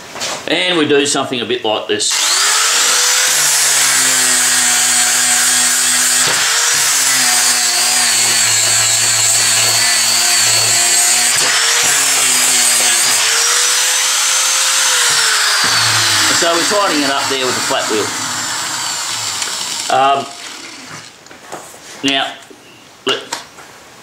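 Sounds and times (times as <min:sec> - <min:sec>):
angle grinder grinding steel: 0:02.1 - 0:21.2.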